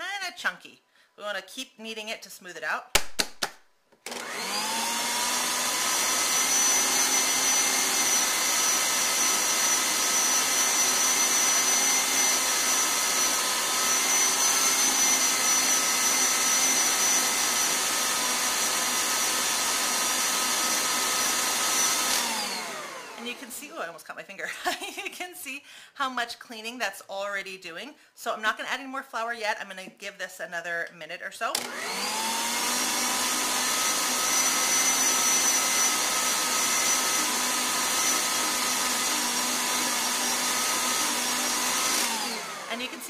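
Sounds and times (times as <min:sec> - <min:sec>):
stand mixer motor whining: 0:04.1 - 0:23.2, 0:31.6 - 0:43.0.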